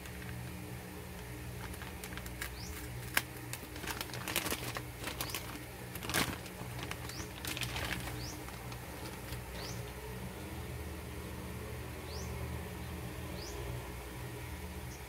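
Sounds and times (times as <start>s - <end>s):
plastic bag crinkling: 0.0s - 0.5s, 1.1s - 10.1s.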